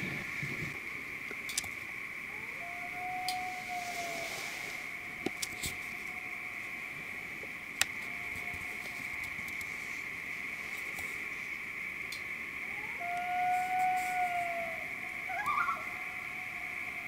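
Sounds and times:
steady high buzz: 0.0 - 17.0
loon wailing: 2.3 - 4.4, 12.6 - 16.7.

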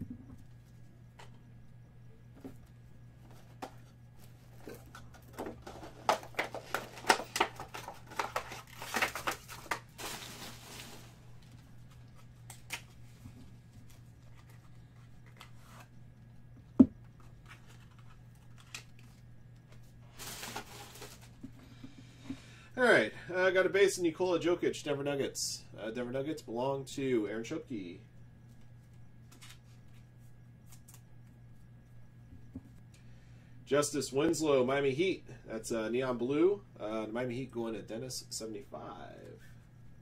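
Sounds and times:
packaging tearing and rustling: 5.3 - 13.0, 20.1 - 21.4.

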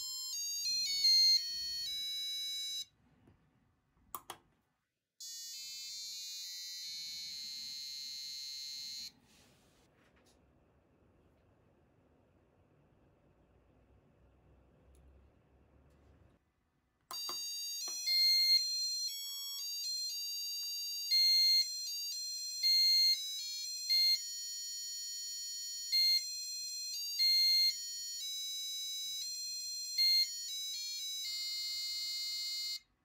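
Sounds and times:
electronic buzzer beeping melody: 0.0 - 2.9, 5.2 - 9.2, 17.1 - 32.9.

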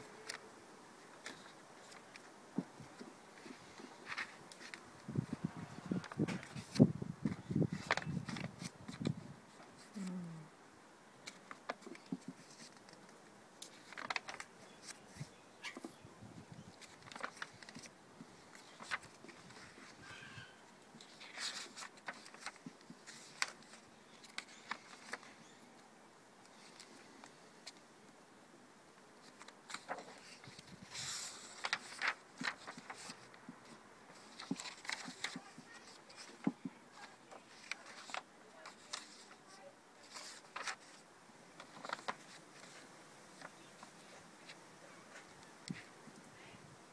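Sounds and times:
paper pages rustling: 0.2 - 0.5, 1.2 - 5.1, 5.8 - 10.2, 11.2 - 15.9, 16.7 - 20.0, 21.0 - 25.6, 26.4 - 27.8, 29.2 - 46.0
paper crinkling clicks: 6.0 - 10.2, 11.2 - 15.9, 16.7 - 17.9, 18.5 - 19.8, 21.0 - 25.4, 29.2 - 33.4, 34.1 - 41.0, 41.6 - 42.8.

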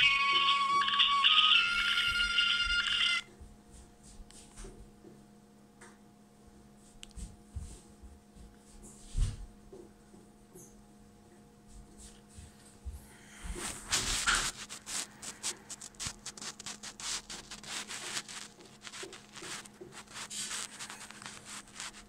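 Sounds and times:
hands rubbing a phone: 13.5 - 22.0.

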